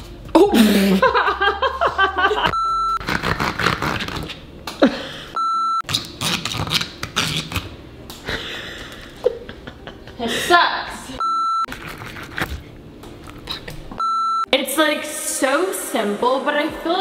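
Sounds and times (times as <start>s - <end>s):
short beeps: 2.5s - 3.0s, 11.2s - 11.7s, 14.0s - 14.5s.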